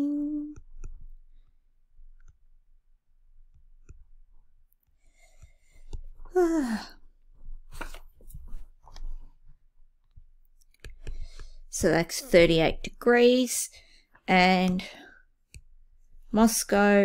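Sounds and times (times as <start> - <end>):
woman sighing: 6.3 - 7.0.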